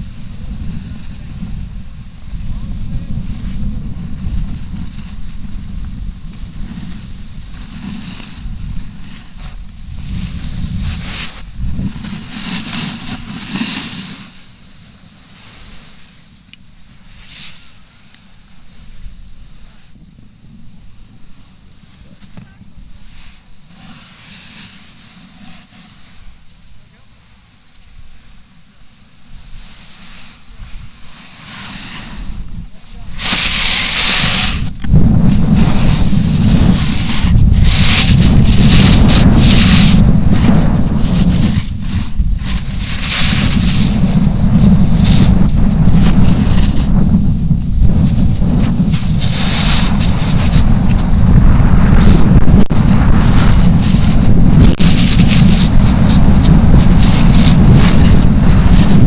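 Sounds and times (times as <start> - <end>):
wind buffeting microphone: 0.0 - 15.1, 31.7 - 59.0
snowboard scraping on snow: 0.0 - 59.0.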